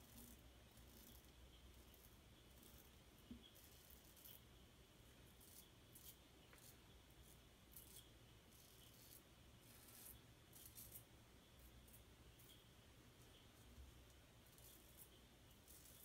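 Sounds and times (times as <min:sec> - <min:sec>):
razor blade scraping stubble: 0:07.7 - 0:11.1, 0:14.5 - 0:16.0.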